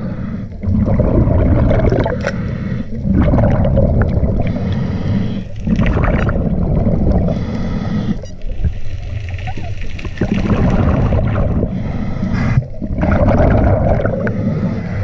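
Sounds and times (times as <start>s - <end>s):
diver breathing through regulator: 0.0s - 8.4s, 10.5s - 15.0s
air bubbling underwater: 0.6s - 4.6s, 5.6s - 7.4s, 8.5s - 14.7s.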